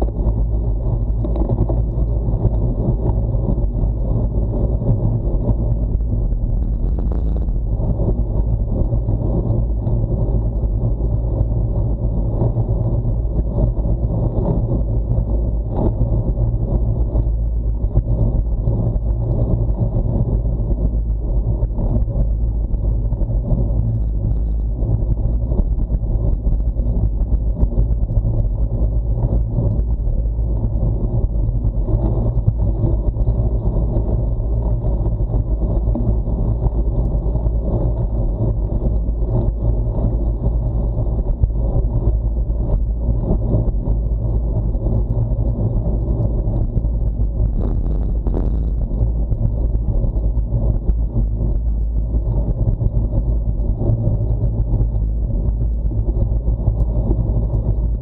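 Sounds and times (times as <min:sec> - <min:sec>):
wind rumble: 0:00.0 - 0:58.0
bicycle rolling on asphalt: 0:18.0 - 0:58.0.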